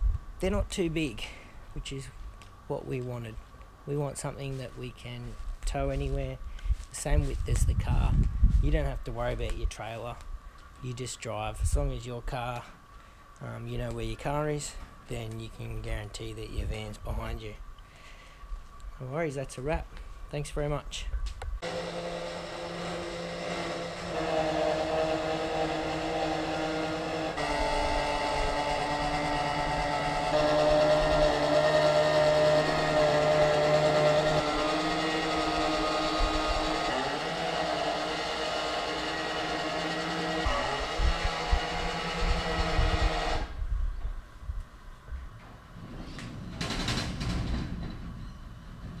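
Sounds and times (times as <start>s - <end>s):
machine hum with fixed tones: 21.2s - 47.4s
vehicle engine running: 21.6s - 43.5s.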